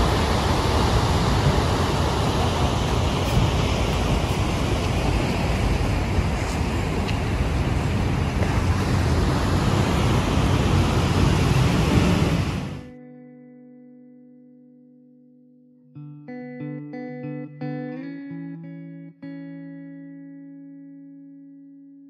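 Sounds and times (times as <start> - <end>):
ocean surf: 0.0 - 12.9
wind: 0.0 - 12.9.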